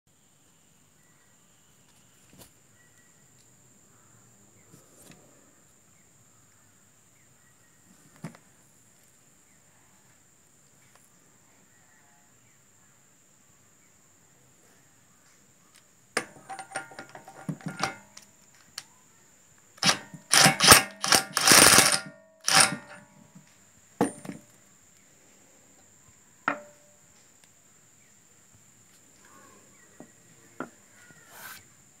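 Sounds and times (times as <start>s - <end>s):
impact wrench hammering: 16.2s - 18.1s, 19.8s - 23.0s, 24.0s - 24.4s, 26.5s - 26.8s.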